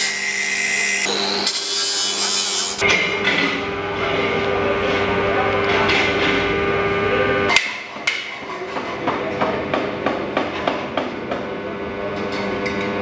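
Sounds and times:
steady hum: 0:02.4 - 0:08.3.

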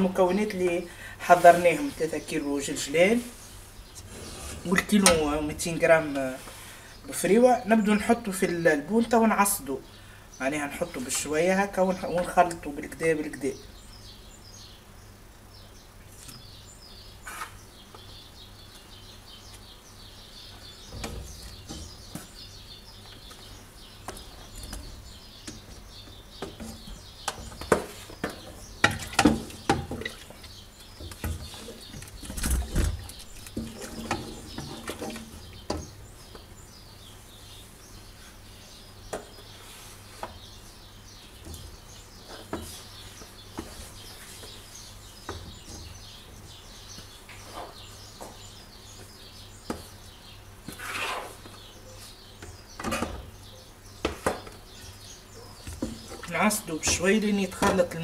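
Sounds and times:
small birds chirping: 0:00.0 - 0:58.0
wooden spoon scraping a metal pot: 0:04.0 - 0:05.4, 0:32.6 - 0:35.9, 0:50.7 - 0:51.4.

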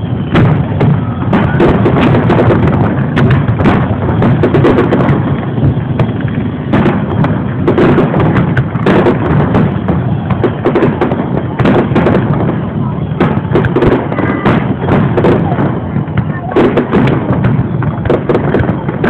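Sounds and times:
firework shells bursting: 0:00.0 - 0:19.0.

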